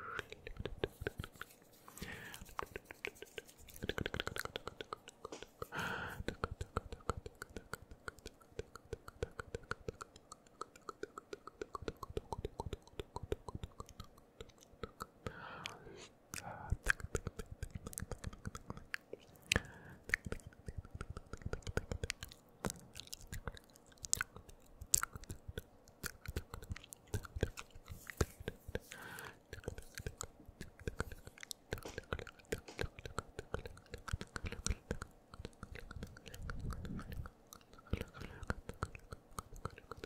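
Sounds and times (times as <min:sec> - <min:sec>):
person whispering: 0:00.0 - 0:08.4, 0:15.2 - 0:17.0, 0:26.5 - 0:40.0
tongue clicks and lip smacks: 0:00.0 - 0:40.0.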